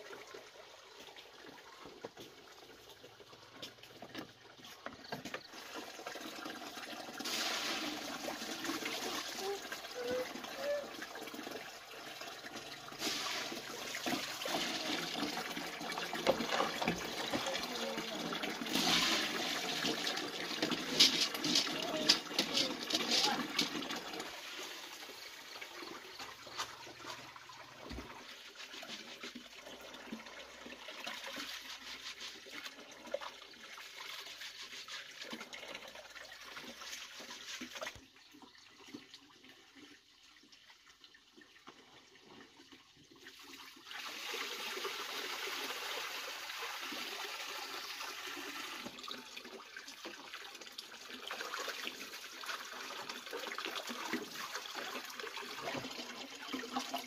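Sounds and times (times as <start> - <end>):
water running and splashing: 0.0 - 57.0.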